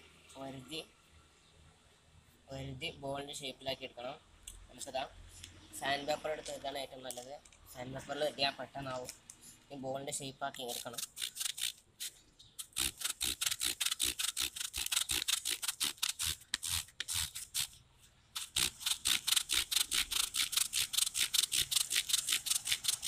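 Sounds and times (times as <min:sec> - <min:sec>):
rubber ball scraping on sandpaper: 0:10.6 - 0:17.8, 0:18.4 - 0:23.0.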